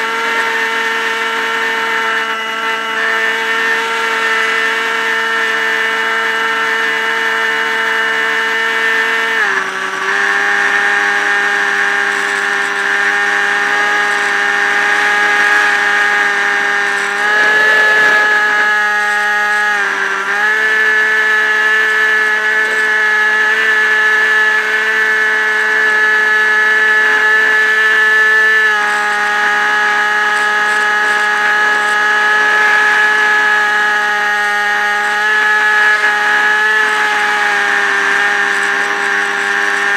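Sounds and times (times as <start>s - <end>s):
model plane motor buzzing: 8.2s - 19.3s.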